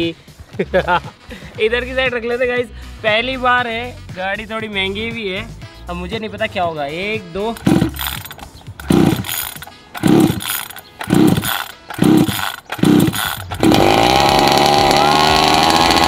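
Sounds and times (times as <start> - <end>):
recoil starter cord yanks: 7.5 - 16.0
two-stroke engine idling: 7.6 - 16.0.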